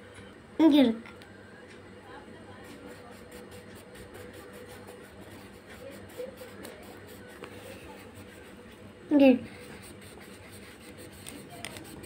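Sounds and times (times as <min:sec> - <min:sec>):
crayon scratching on paper: 0:02.6 - 0:08.6, 0:09.4 - 0:12.0.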